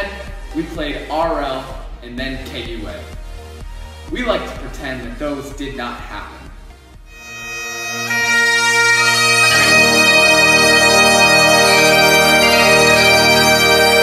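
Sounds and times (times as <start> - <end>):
bagpipe music: 7.0 - 14.0.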